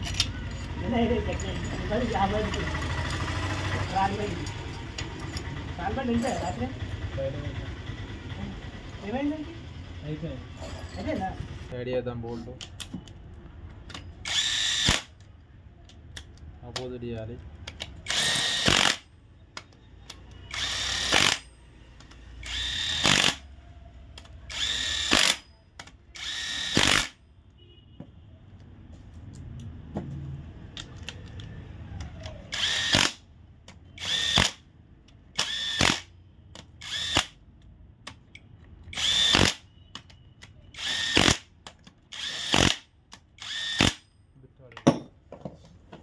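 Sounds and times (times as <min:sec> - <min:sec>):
cordless drill whining: 0:14.2 - 0:15.1, 0:18.0 - 0:19.0, 0:20.5 - 0:21.4, 0:22.0 - 0:23.4, 0:24.5 - 0:25.4, 0:26.2 - 0:27.2, 0:32.1 - 0:33.2, 0:34.0 - 0:34.6, 0:35.4 - 0:36.1, 0:36.8 - 0:37.3, 0:38.9 - 0:39.6, 0:40.7 - 0:41.4, 0:42.1 - 0:42.8, 0:43.4 - 0:44.0.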